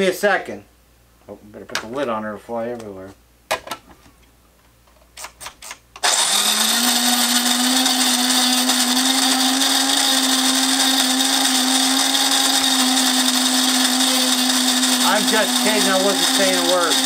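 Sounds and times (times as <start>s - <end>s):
coffee grinder grinding beans: 5.2s - 17.0s.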